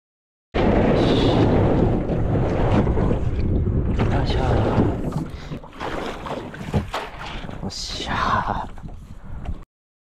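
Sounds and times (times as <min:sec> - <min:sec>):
wind buffeting microphone: 0:00.6 - 0:09.6
paddle splashing in water: 0:00.7 - 0:08.0.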